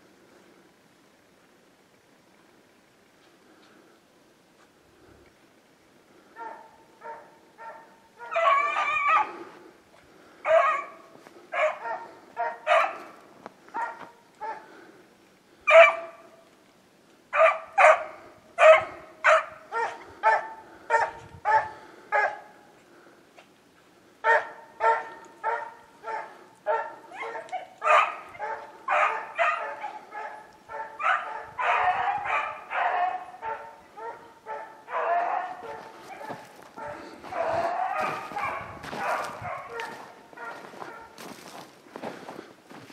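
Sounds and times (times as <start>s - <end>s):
dogs baying: 6.4s - 9.5s, 10.4s - 14.7s, 24.3s - 41.4s.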